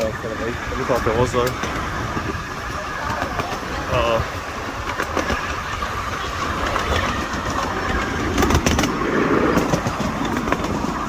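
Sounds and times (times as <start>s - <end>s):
sharp track clicks: 0.0s - 2.4s, 4.6s - 10.9s
miniature train rumbling: 0.0s - 11.0s.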